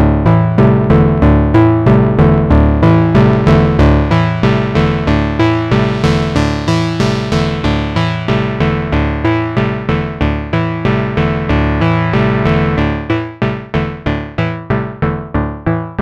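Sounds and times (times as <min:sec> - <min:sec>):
synthesizer looping low notes: 0:00.6 - 0:15.6.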